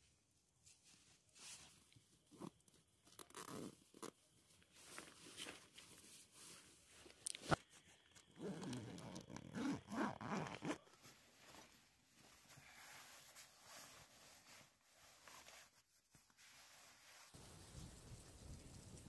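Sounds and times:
quilted fabric rustling: 0.0s - 17.4s
zipper pulled in rasping strokes: 3.2s - 4.1s, 8.3s - 10.9s.

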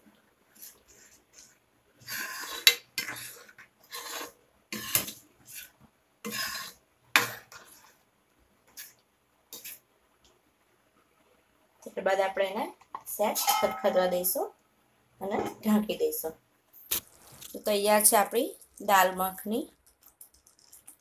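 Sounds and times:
spoon stirring and scraping pan: 0.5s - 9.9s, 12.8s - 14.4s
spoon clacking against pan: 13.4s - 14.2s.

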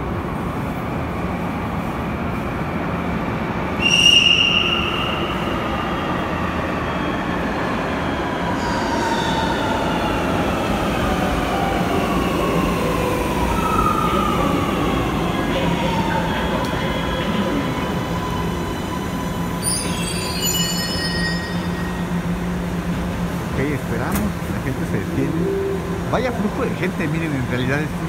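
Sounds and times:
train rumble: 8.4s - 28.0s
loud high tone: 25.2s - 26.3s.

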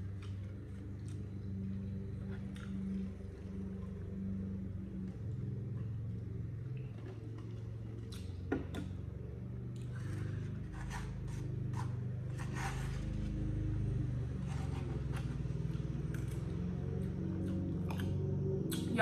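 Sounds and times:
chewing and mouth sounds: 0.0s - 3.1s.

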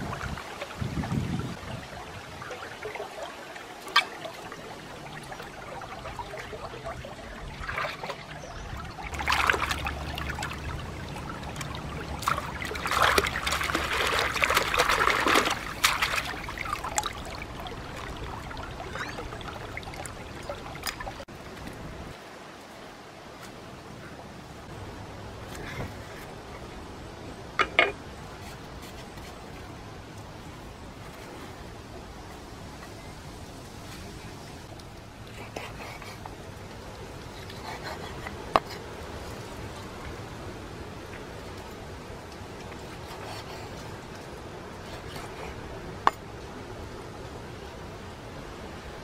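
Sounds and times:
stream trickling over stones: 0.0s - 23.3s, 27.6s - 49.0s
hands splashing in water: 11.5s - 17.4s.

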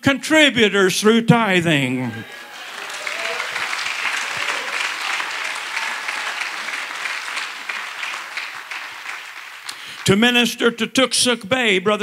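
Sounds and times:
crowd applauding: 2.2s - 10.6s.

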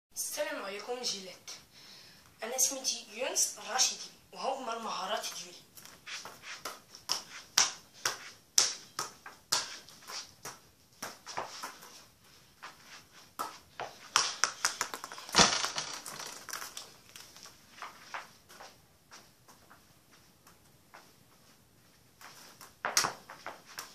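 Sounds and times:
football taps and thuds on feet: 13.4s - 15.6s.

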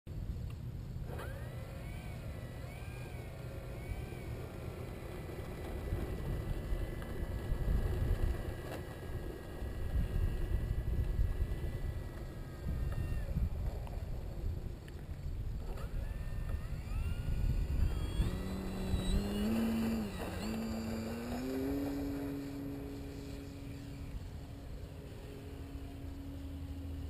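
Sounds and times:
electric motor and propeller whining: 0.1s - 27.0s
wind rumble on microphone: 3.8s - 25.2s.

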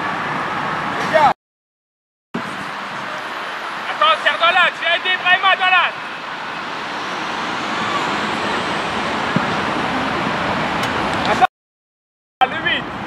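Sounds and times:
rushing background noise: 2.4s - 11.5s.

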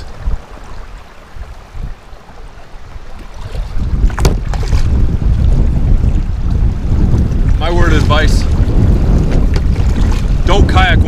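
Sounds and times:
waves lapping against kayak: 0.0s - 11.0s
wind buffeting microphone: 0.0s - 11.0s
water splash: 3.0s - 10.5s.

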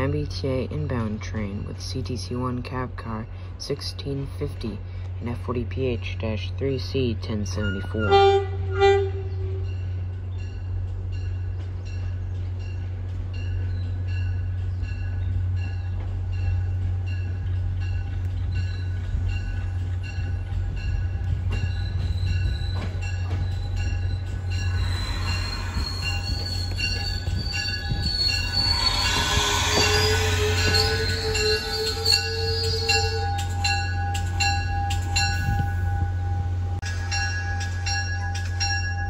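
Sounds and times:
train approaching: 0.0s - 39.0s
wheel squeal: 21.6s - 35.4s
bell ringing: 23.0s - 36.1s.

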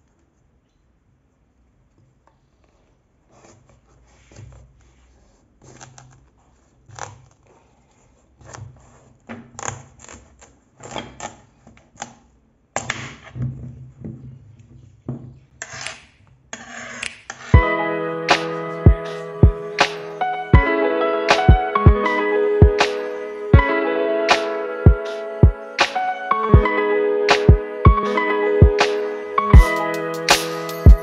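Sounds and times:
music: 17.6s - 31.0s.

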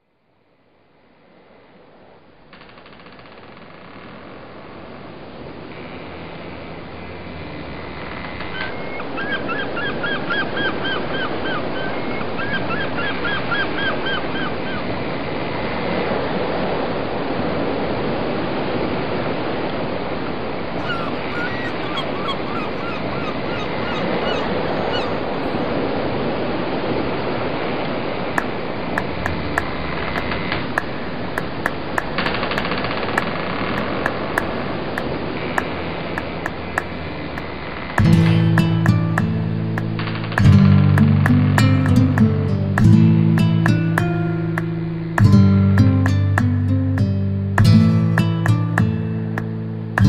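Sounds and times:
wind and water rushing: 9.0s - 38.0s
short honking calls: 20.8s - 25.7s.

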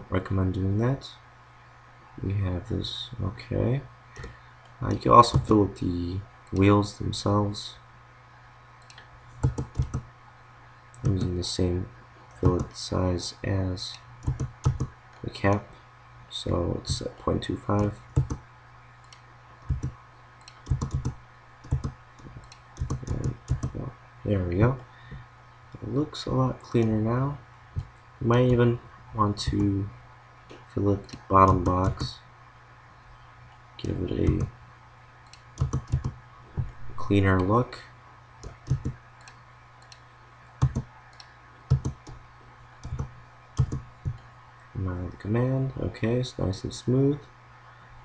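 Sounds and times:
faint steady hum: 0.0s - 48.0s
mouse and keyboard clicks: 19.0s - 23.8s.

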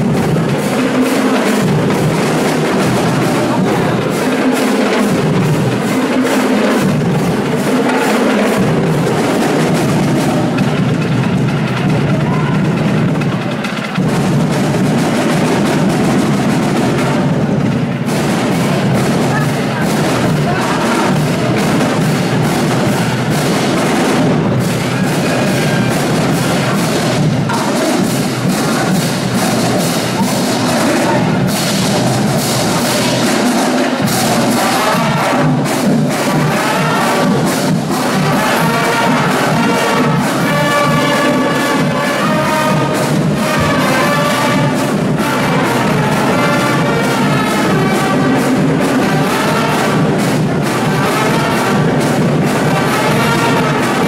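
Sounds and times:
marching drums and percussion: 0.0s - 54.0s
brass playing a melody: 34.0s - 54.0s.

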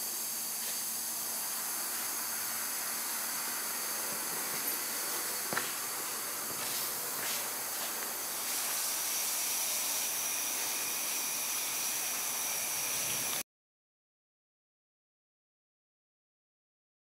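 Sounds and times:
steady background hiss: 0.0s - 13.4s.

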